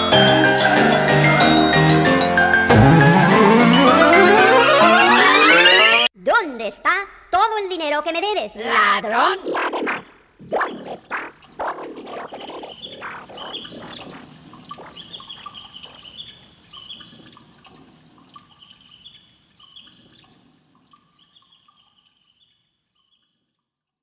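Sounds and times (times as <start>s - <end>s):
bird-like chirps: 10.5s - 23.6s.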